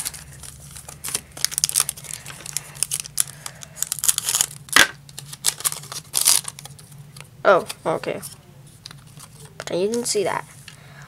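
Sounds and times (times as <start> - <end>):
foil pack crinkling and tearing: 0.0 - 6.9.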